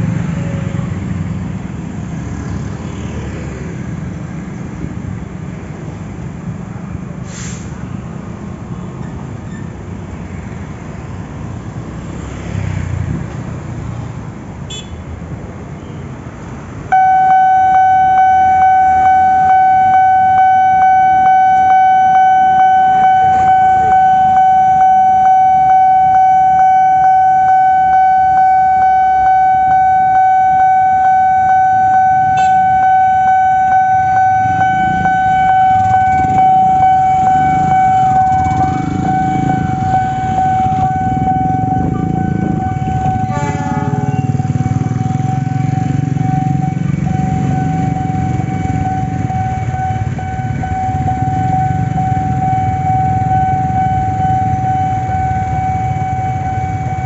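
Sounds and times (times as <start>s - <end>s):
road traffic engines: 0.0s - 57.0s
level crossing warning alarm: 16.9s - 57.0s.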